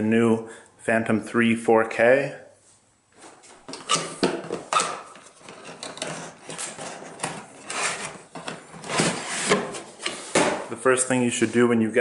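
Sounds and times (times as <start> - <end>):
cardboard scraping on cardboard: 5.2 - 10.6.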